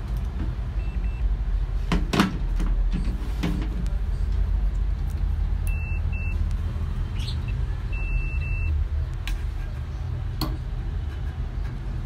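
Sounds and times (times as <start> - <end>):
multimeter beeps: 0.8 - 1.3, 5.6 - 6.4, 7.3 - 8.8
steady low rumble: 2.4 - 12.0.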